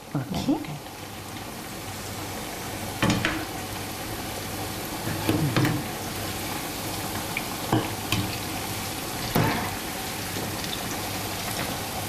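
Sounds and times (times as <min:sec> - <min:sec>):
food deep-frying in hot oil: 0:00.0 - 0:12.0.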